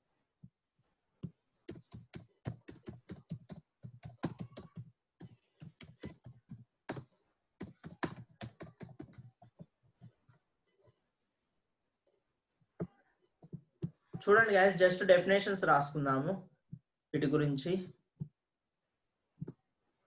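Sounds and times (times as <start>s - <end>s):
keyboard typing: 1.7s - 10.2s.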